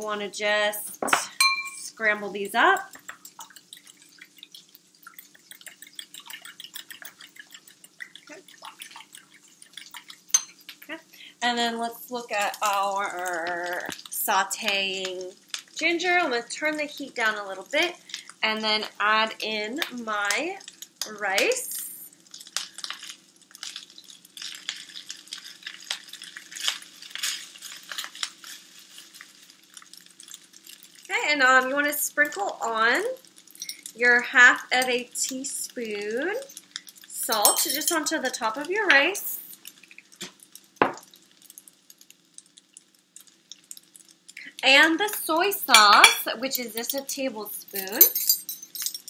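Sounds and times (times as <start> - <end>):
oil crackling in a pan: 0.0 - 49.0
fork beating eggs in bowl: 2.6 - 11.0.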